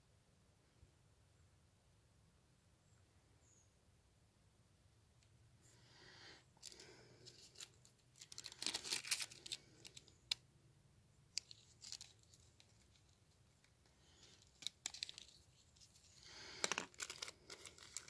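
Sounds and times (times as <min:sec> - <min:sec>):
paper rustling and crinkling: 0:06.6 - 0:10.3, 0:11.4 - 0:18.0.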